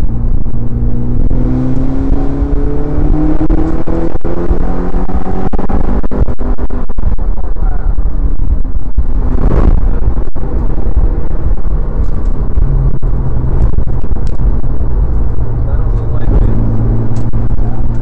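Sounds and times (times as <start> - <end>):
car engine running hard: 0.0 - 18.0
road noise: 0.0 - 18.0.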